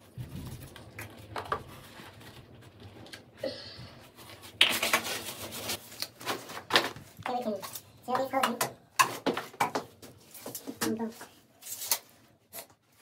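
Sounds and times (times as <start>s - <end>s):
rub or scrape: 4.3s - 6.4s.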